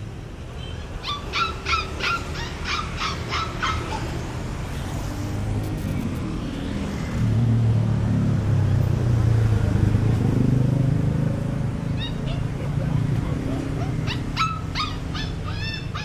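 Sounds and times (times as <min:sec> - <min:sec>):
puppy yelping: 0:01.0 - 0:04.3, 0:11.8 - 0:16.0.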